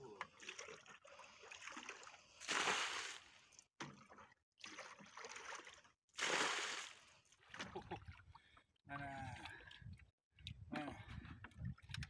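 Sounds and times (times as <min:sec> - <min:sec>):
bucket dipping into muddy water: 0:00.2 - 0:12.0
water splashing out of bucket: 0:01.6 - 0:03.3, 0:03.9 - 0:08.0.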